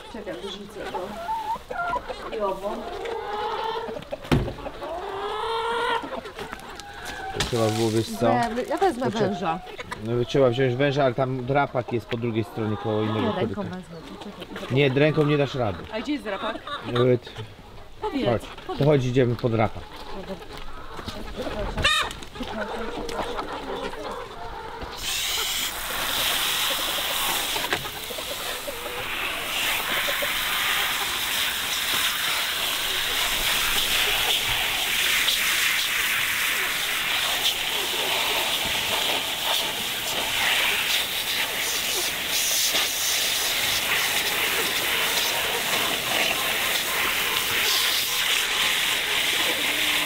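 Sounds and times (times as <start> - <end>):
hens clucking: 0.0 - 50.0
garden hose spraying water: 7.4 - 9.3, 25.0 - 50.0.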